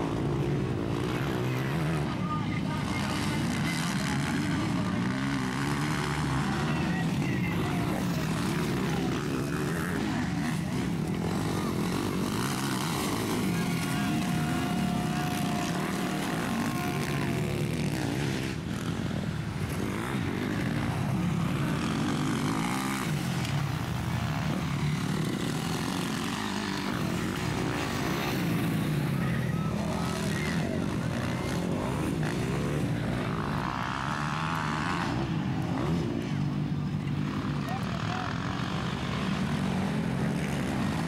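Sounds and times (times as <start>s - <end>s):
motocross bike engines revving: 0.0s - 41.0s.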